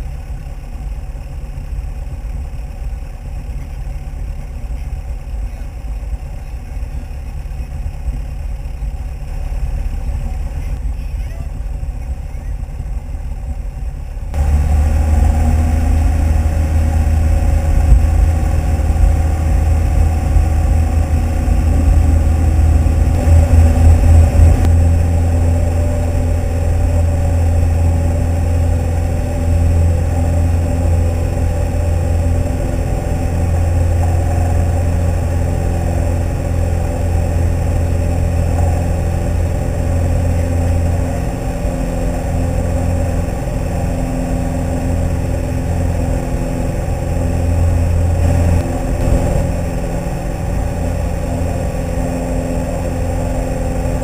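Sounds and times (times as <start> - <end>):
light aircraft engine and propeller: 0.0 - 54.0.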